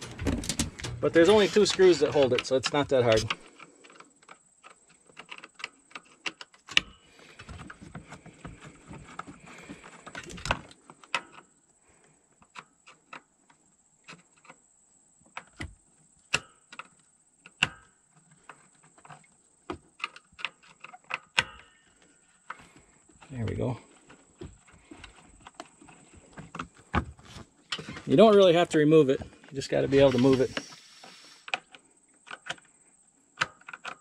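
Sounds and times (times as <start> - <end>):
scraping and rustling: 0.0 - 4.0, 29.2 - 31.6.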